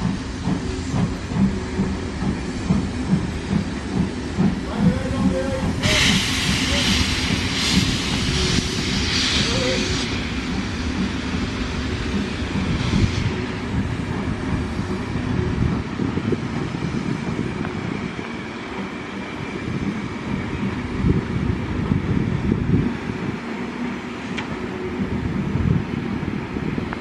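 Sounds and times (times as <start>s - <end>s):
train knocks: 0.0s - 9.1s
train wheels rumbling on rails: 0.0s - 27.0s.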